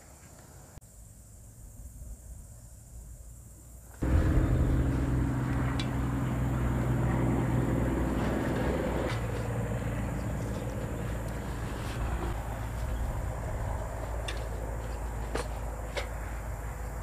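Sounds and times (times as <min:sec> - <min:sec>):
engine humming: 0:04.0 - 0:17.0.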